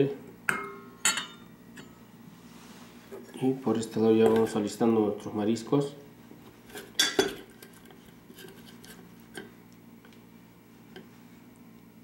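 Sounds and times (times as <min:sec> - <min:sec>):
metal spoon clinking on steel bowl: 0:00.5 - 0:01.9.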